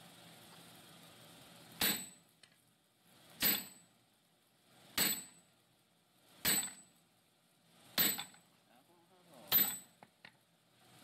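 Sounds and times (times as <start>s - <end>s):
hammer clanging on metal: 5.0s - 5.4s, 6.4s - 6.8s, 8.0s - 8.4s, 9.5s - 9.9s.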